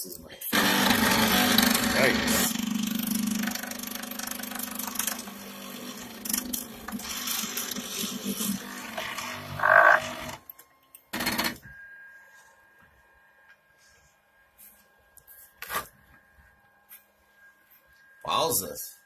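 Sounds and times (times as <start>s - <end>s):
printer stepper motors rattling: 0.6s - 10.4s, 11.2s - 11.6s
faint steady whine: 9.0s - 19.0s.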